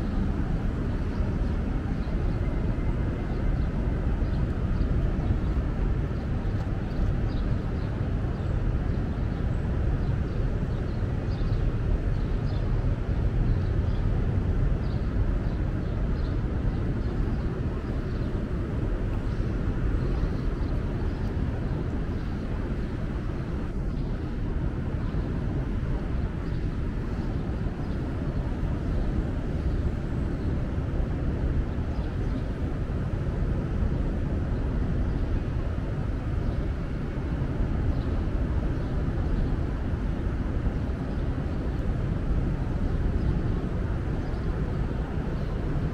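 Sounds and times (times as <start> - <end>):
low city rumble: 0.0 - 45.9.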